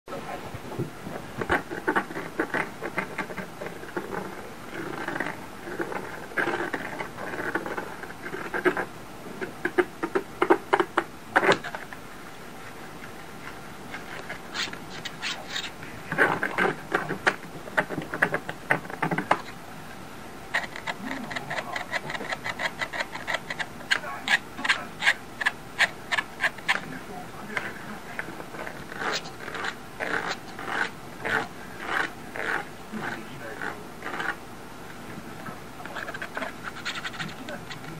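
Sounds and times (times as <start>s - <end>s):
stick scratching a surface: 13.9s - 19.5s, 20.6s - 26.9s, 27.6s - 34.4s, 35.8s - 37.9s.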